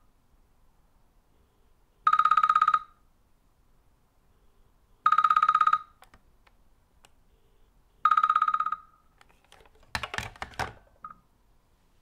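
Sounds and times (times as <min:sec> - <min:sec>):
telephone bell ringing: 0:02.1 - 0:03.0, 0:05.1 - 0:06.0, 0:08.0 - 0:08.9
handset clattering on cradle: 0:09.2 - 0:11.1.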